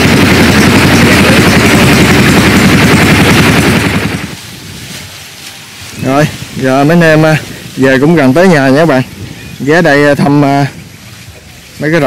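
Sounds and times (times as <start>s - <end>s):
small engine chattering exhaust: 0.0s - 4.4s.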